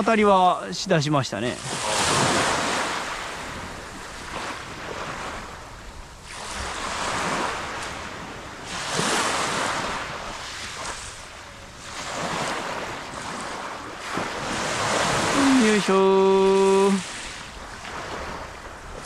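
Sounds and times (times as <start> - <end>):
small waves breaking on beach: 0.0 - 19.0.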